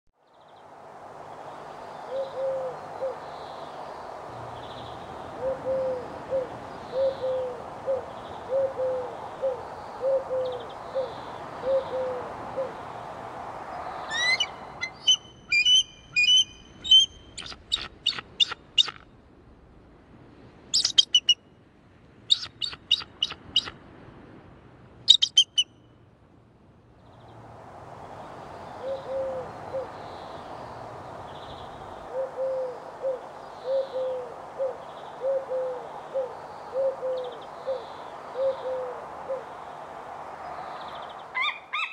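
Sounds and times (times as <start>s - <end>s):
rushing background noise: 0.4s - 41.9s
eagle chattering calls: 14.1s - 19.0s, 25.1s - 25.7s, 41.3s - 41.9s.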